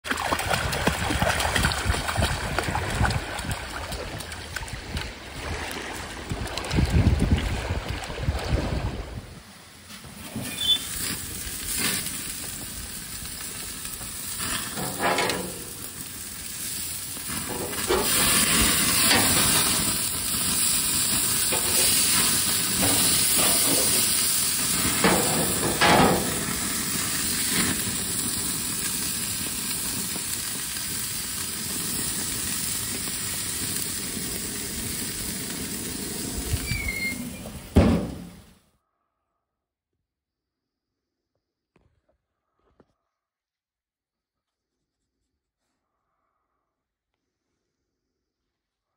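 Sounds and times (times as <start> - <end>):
dog wading in water: 0.0 - 9.1
patties sizzling on grill: 10.0 - 37.4.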